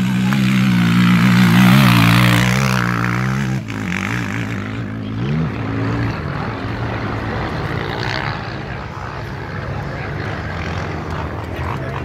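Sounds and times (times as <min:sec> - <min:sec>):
quad engine revving hard: 0:00.0 - 0:08.5.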